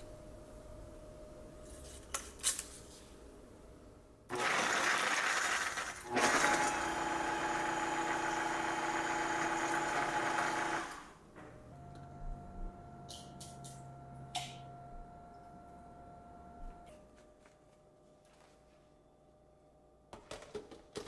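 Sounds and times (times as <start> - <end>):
blender motor whirring: 4.3 - 11.2.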